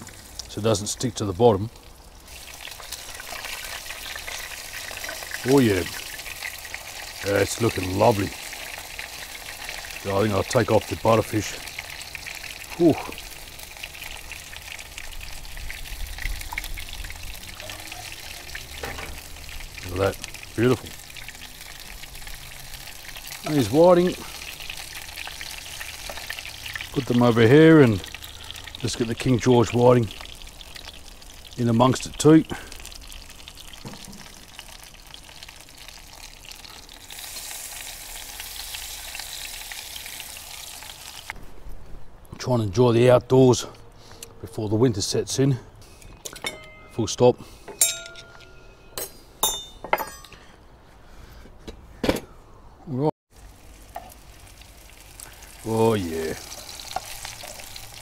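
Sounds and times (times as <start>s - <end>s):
fish sizzling in hot oil: 0.0s - 1.0s, 1.7s - 41.4s, 53.3s - 58.0s.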